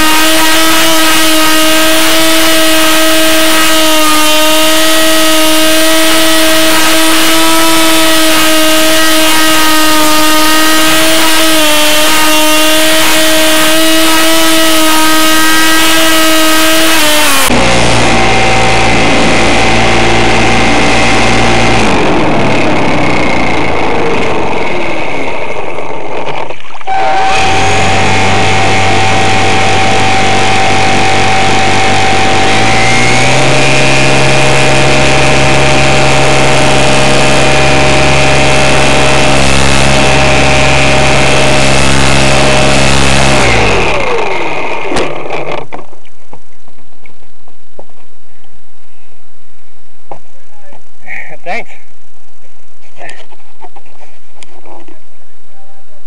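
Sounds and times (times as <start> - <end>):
model airplane motor buzzing: 0.0 - 45.8.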